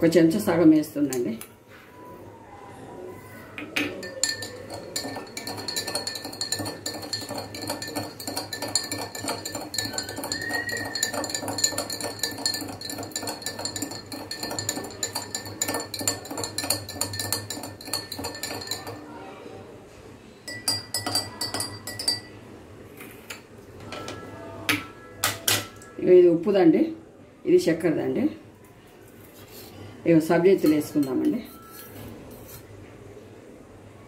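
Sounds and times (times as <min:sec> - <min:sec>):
metal spoon clinking in glass: 0:03.8 - 0:19.0, 0:20.5 - 0:22.4, 0:30.6 - 0:32.7.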